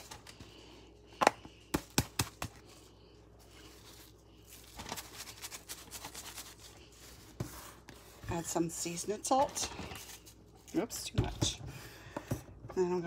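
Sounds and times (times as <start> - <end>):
plastic bag crinkling: 3.6 - 7.1.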